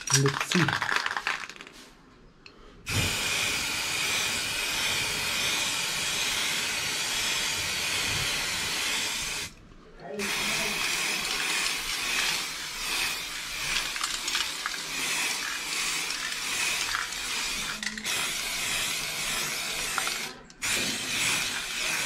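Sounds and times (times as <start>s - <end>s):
spray paint can hissing: 2.9s - 9.5s, 10.2s - 22.0s.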